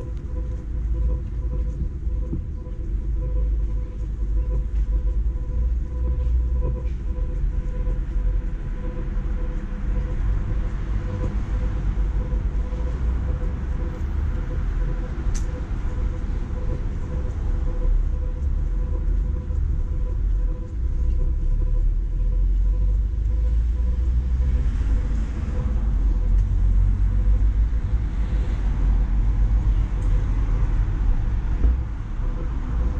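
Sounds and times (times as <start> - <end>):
city street traffic rumble: 0.0 - 32.9
faint steady whine: 0.0 - 32.9
sharp click: 15.3 - 15.5.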